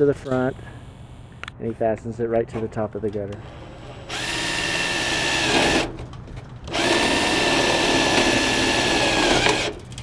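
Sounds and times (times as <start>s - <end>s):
cordless drill motor whine: 3.4s - 5.9s, 6.7s - 9.7s.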